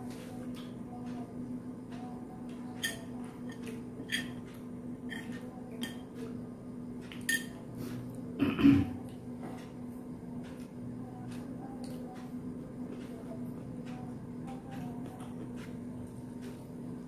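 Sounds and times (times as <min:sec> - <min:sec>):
steady low hum: 0:00.0 - 0:17.0
metal spoon clinking on plates: 0:02.8 - 0:06.1, 0:07.1 - 0:07.6.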